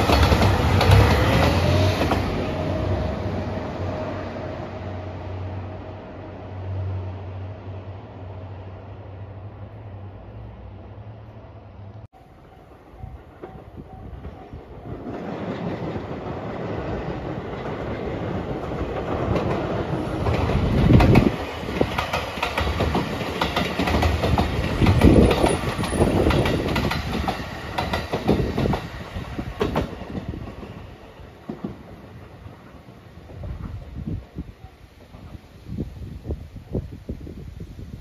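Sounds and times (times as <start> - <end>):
wheels clacking over rail joints: 0.0 - 2.5, 13.3 - 32.3
train passing rumble: 0.0 - 38.0.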